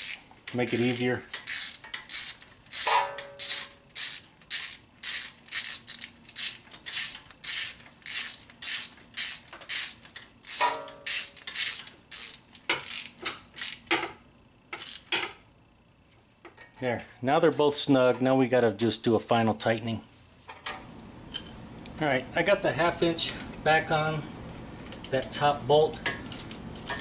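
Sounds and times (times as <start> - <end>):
ratchet wrench clicking: 0.0 - 14.0, 14.7 - 15.1.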